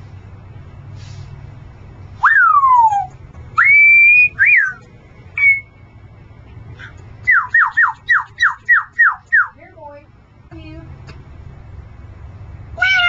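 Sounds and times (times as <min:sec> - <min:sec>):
parrot whistling: 0:02.2 - 0:04.8, 0:05.4 - 0:05.7, 0:06.8 - 0:09.5.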